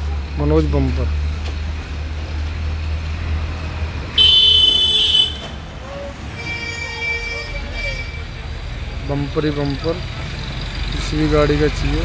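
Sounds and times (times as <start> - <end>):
street traffic rumble: 0.0 - 12.0
vehicle horn honking: 4.2 - 5.6.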